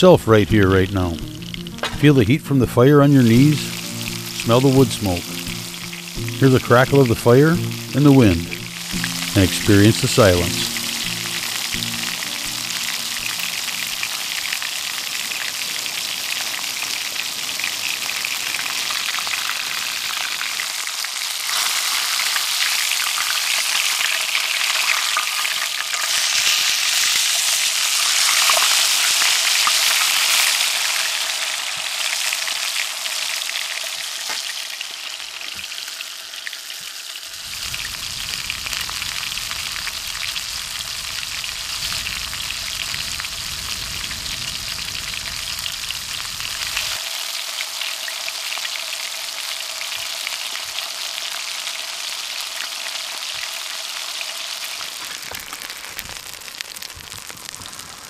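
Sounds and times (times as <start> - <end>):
fish sizzling in hot oil: 1.1 - 2.0, 3.2 - 58.0
low rumble: 37.8 - 47.0.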